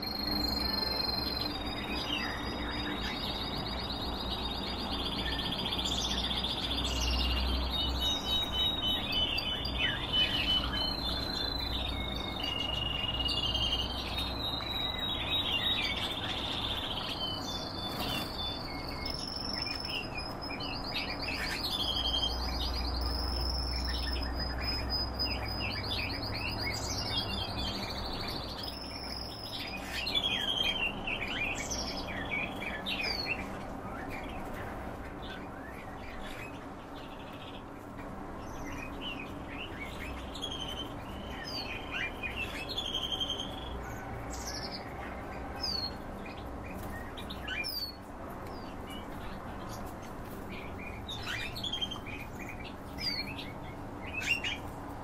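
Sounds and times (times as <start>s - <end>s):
songbirds singing: 0.0s - 55.0s.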